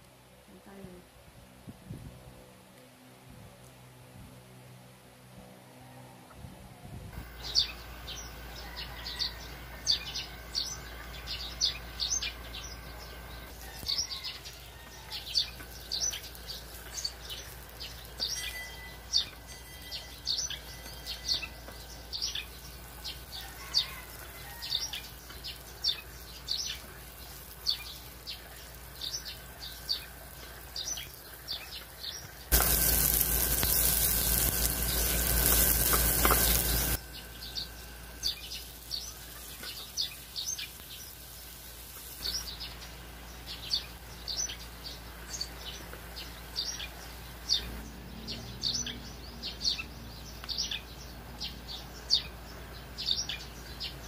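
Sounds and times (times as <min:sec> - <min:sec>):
small birds chirping: 0:07.2 - 0:54.0
onions frying in hot oil: 0:13.1 - 0:18.4, 0:21.7 - 0:37.0, 0:37.6 - 0:47.6
low steady hum: 0:24.0 - 0:54.0.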